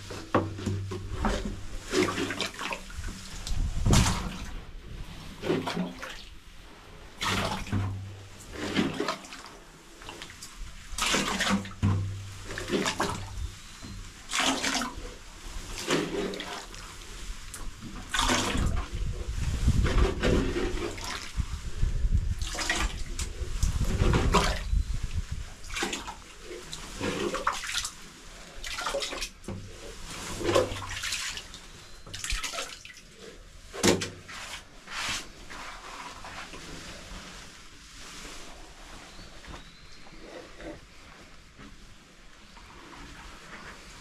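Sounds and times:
liquid splashing and gurgling: 0.0 - 34.6.

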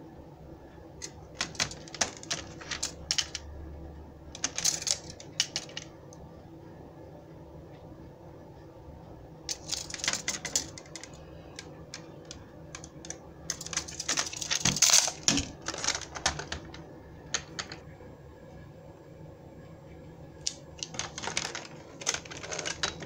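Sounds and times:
plastic toy clicks and rattles: 1.0 - 3.4, 4.4 - 5.9, 9.5 - 16.8, 20.5 - 23.0.

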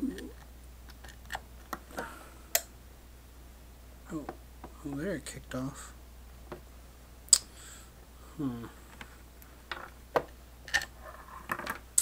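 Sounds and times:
person humming: 8.2 - 8.8.

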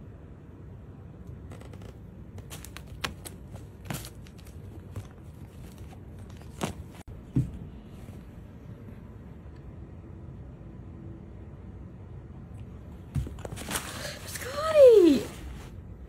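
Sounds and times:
crinkles and rustles: 1.5 - 7.1, 13.2 - 14.6.

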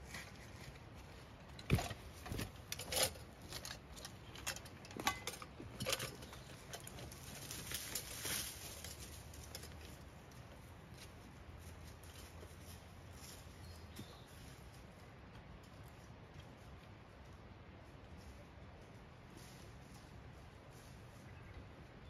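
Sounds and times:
footsteps on dry leaves: 6.9 - 15.2, 17.8 - 21.5.

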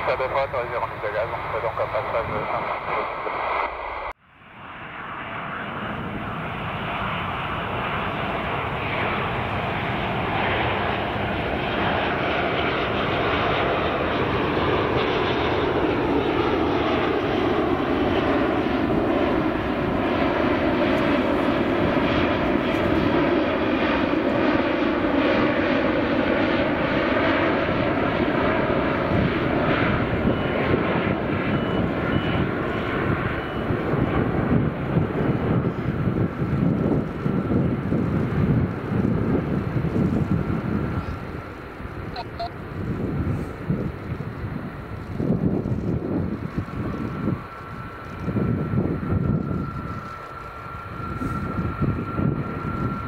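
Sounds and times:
jet airliner roaring past: 0.0 - 53.0.

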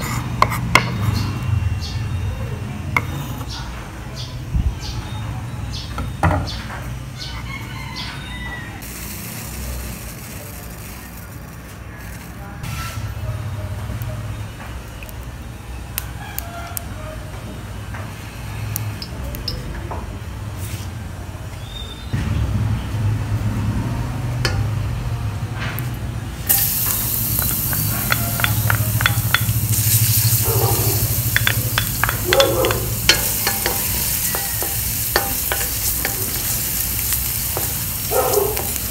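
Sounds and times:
rooster crowing: 7.2 - 9.0, 30.4 - 36.5
garlic sizzling in hot oil: 8.8 - 12.4, 26.5 - 38.9
chickens clucking: 26.6 - 38.9
wooden spatula ticking on pot: 27.4 - 29.7, 31.3 - 36.4.

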